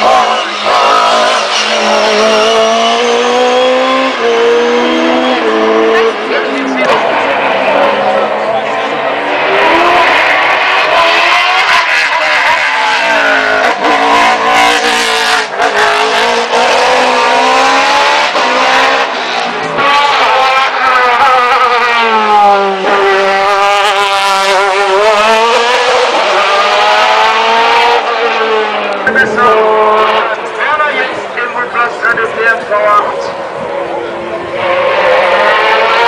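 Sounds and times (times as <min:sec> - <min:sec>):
race car engines revving: 0:00.0 - 0:36.0.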